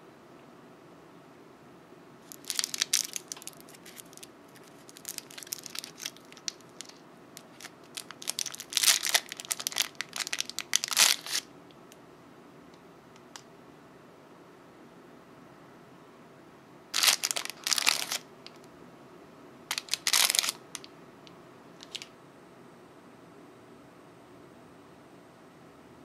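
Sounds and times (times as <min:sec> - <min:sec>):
cellophane wrapper crinkling: 0:02.2 - 0:11.5, 0:16.9 - 0:18.6, 0:19.7 - 0:20.9, 0:21.8 - 0:22.1.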